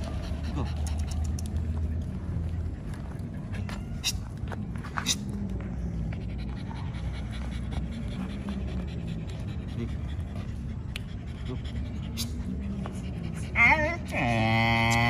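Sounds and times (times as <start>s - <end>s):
dog panting: 0.0s - 1.8s, 5.9s - 14.3s.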